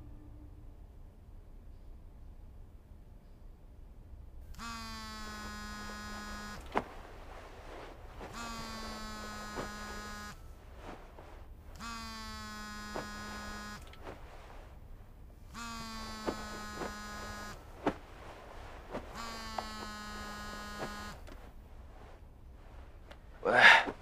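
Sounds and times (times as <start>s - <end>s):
phone vibration buzzing: 4.5s - 22.2s.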